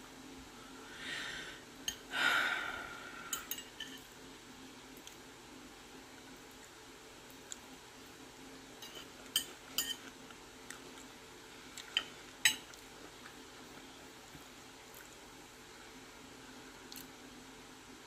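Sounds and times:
cutlery clinking on plate: 0:03.3 - 0:04.1, 0:08.8 - 0:10.1, 0:11.9 - 0:12.8.

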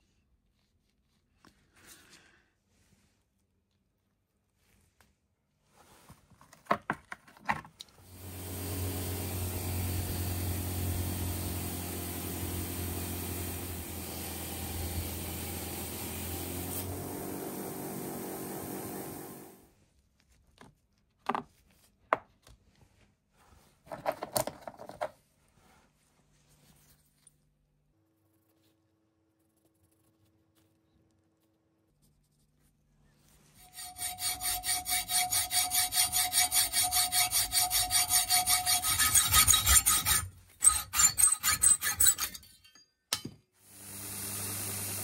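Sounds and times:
electric power tool motor: 0:08.0 - 0:19.6, 0:43.7 - 0:45.0.

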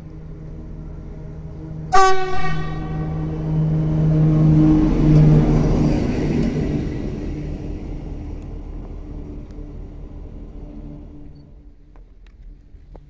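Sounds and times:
diesel locomotive passing: 0:00.0 - 0:12.9.

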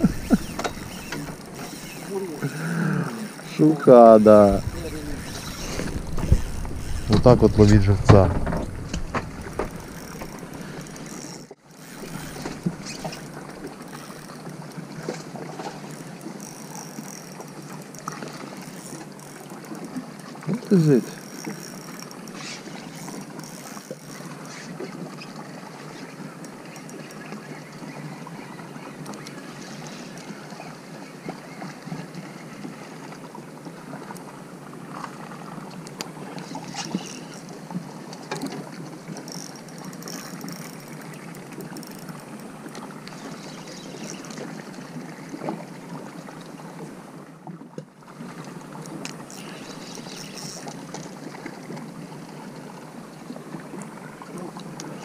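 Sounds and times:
water lapping against boat hull: 0:00.0 - 0:55.0
wind on microphone: 0:04.4 - 0:10.0.

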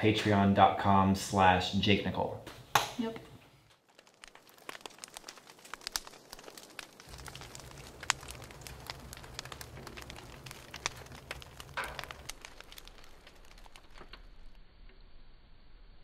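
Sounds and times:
wood fire crackling and popping: 0:02.4 - 0:14.6.

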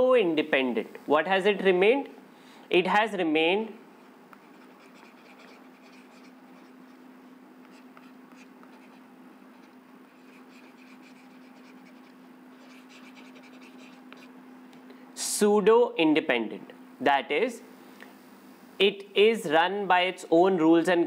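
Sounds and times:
steady low hum: 0:00.0 - 0:21.0
stylus scratching on pen tablet: 0:04.4 - 0:14.3.

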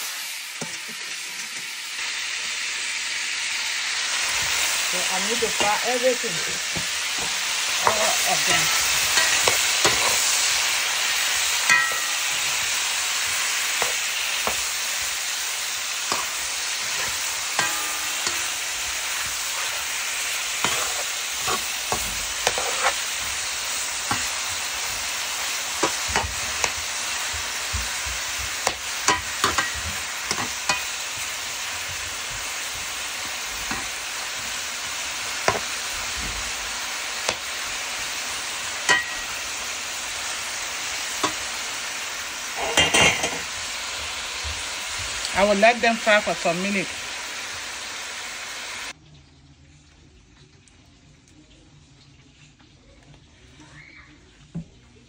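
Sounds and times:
meat sizzling in oil: 0:00.0 - 0:49.5
metal spoon scraping pot: 0:20.6 - 0:25.0.

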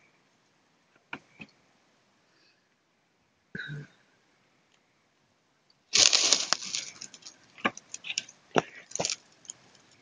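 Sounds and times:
rustling and crackling handling: 0:05.9 - 0:10.0.

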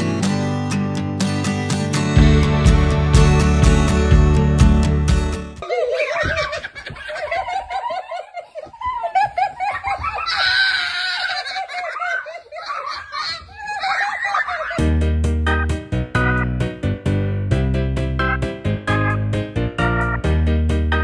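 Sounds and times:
guitar music: 0:00.0 - 0:05.6, 0:14.8 - 0:21.0
person laughing hard: 0:05.6 - 0:15.1.

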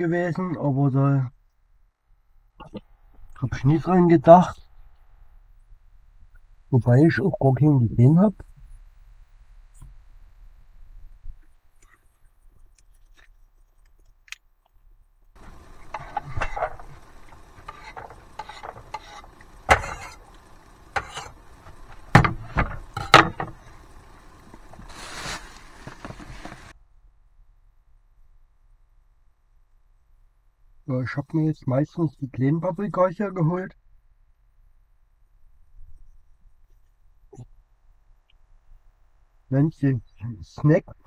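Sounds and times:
short rustle: 0:22.7 - 0:26.7.

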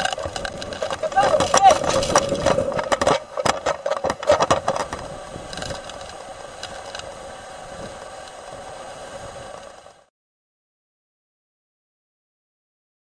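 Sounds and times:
rattling and knocking: 0:00.0 - 0:06.0
strong wind rushing: 0:00.0 - 0:09.9.

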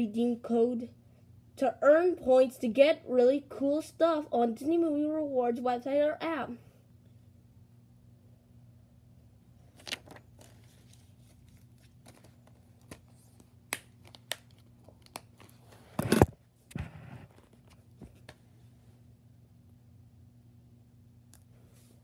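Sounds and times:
plastic case rustling: 0:09.7 - 0:13.4.

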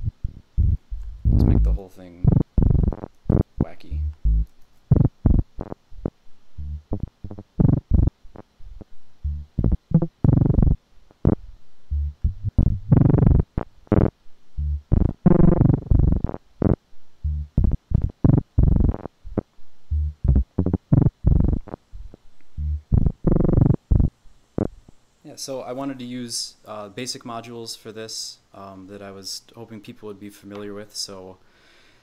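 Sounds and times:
short bass-heavy synth notes: 0:00.0 - 0:05.6, 0:06.5 - 0:08.1, 0:09.2 - 0:10.8, 0:11.9 - 0:13.6, 0:14.6 - 0:16.3, 0:17.2 - 0:18.9, 0:19.9 - 0:21.6, 0:22.5 - 0:24.1.

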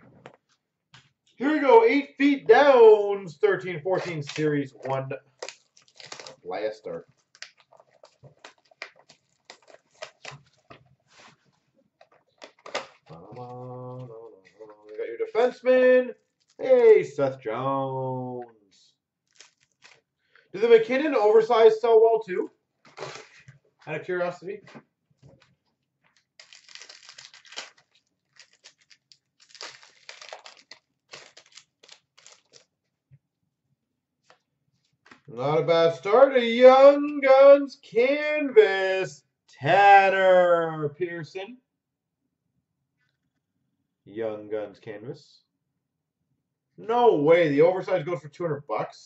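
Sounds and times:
wrapper crinkling: 0:05.4 - 0:06.5, 0:07.1 - 0:11.4, 0:16.2 - 0:16.6, 0:19.3 - 0:20.1, 0:26.1 - 0:32.8.

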